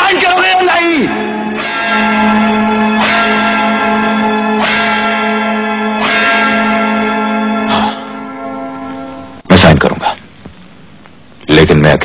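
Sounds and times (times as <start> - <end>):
bell tolling: 1.0 - 9.4
steady low tone: 1.1 - 9.7.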